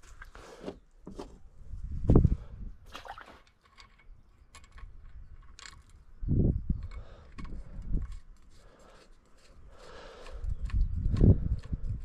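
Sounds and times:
metal parts clicking and clinking: 0:03.5 - 0:06.1.

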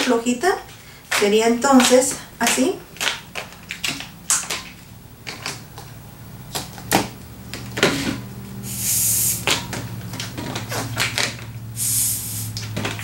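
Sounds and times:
air hissing from balloon: 0:07.8 - 0:09.6, 0:11.7 - 0:12.7
rubbery balloon squeaks: 0:10.4 - 0:11.4.

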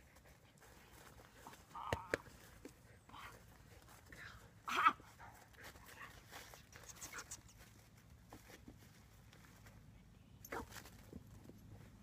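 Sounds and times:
footsteps on leafy grass: 0:05.1 - 0:09.8.

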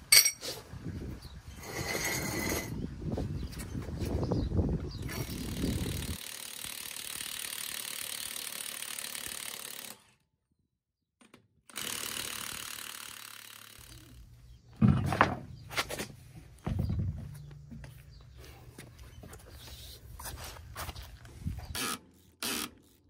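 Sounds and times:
impact wrench whirring: 0:11.7 - 0:14.3, 0:21.7 - 0:23.0.

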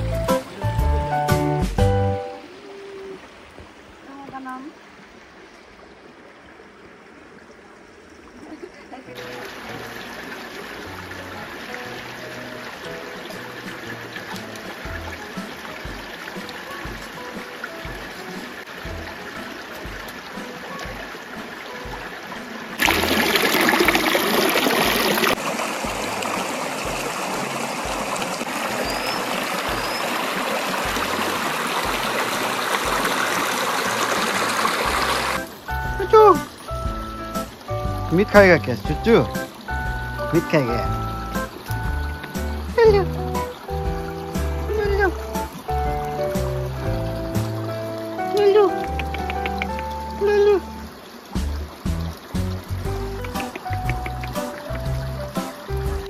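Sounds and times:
music with held notes: 0:00.0 - 0:02.4, 0:35.2 - 0:56.0
stream running over rocks: 0:00.0 - 0:56.0
river rushing over stones: 0:02.2 - 0:36.8.

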